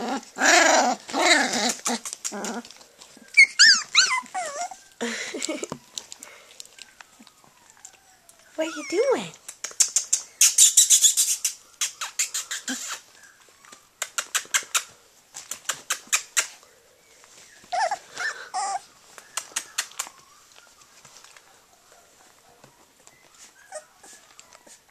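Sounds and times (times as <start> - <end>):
puppy whimpers: 0.0 - 15.0, 17.4 - 24.9
quick sharp clicks: 9.4 - 13.0, 14.0 - 14.9, 19.3 - 20.2.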